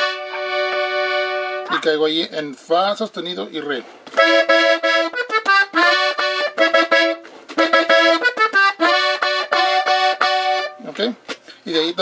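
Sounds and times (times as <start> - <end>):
piano accordion playing lively melody: 0.0 - 1.9, 4.1 - 11.0.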